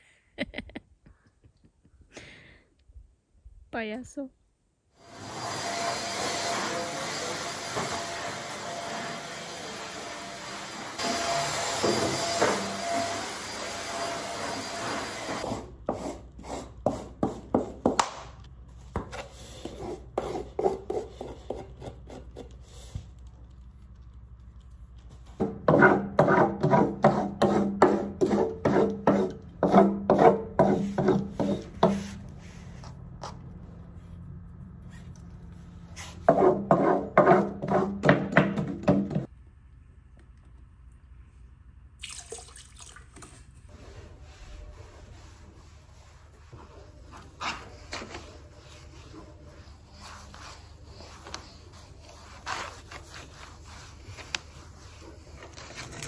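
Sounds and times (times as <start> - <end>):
stick vacuum cleaner running: 5.0 - 15.4
hand tool scraping carpet: 5.2 - 18.0, 19.0 - 23.2, 25.1 - 33.4, 35.9 - 39.3, 43.7 - 56.0.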